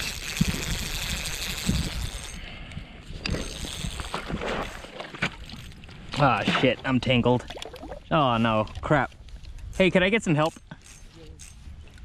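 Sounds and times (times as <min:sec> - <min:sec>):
wind rushing over microphone: 0:00.0 - 0:04.5
fishing reel clicks and knocks: 0:00.0 - 0:04.8, 0:09.4 - 0:12.0.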